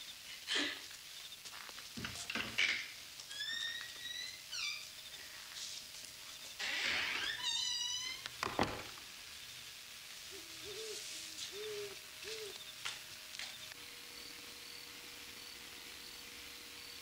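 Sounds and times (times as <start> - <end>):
owl hooting softly: 10.2 - 12.9.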